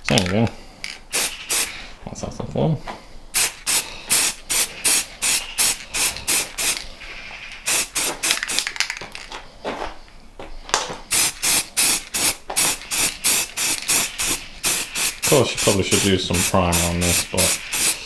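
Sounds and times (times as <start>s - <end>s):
spray paint can hissing: 1.1s - 1.8s, 3.4s - 6.9s, 7.5s - 8.7s, 11.1s - 18.0s.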